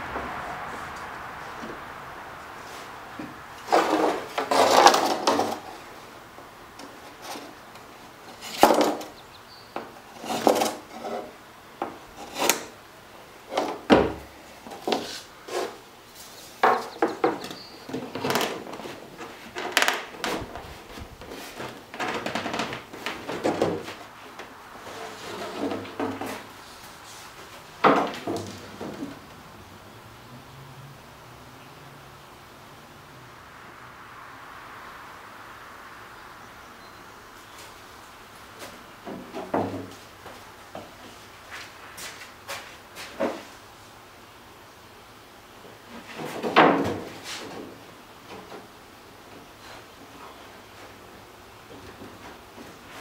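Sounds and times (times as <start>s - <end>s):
wooden strips clacking and rubbing: 3.1s - 5.9s, 6.8s - 9.2s, 9.8s - 12.8s, 13.4s - 26.6s, 27.4s - 29.4s, 38.6s - 43.5s, 45.9s - 51.0s.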